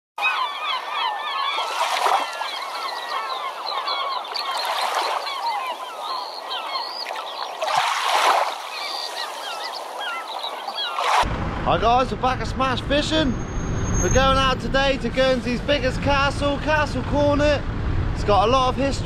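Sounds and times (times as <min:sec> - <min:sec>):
flock of birds calling: 0:00.2 - 0:11.2
rushing noise: 0:11.2 - 0:18.8.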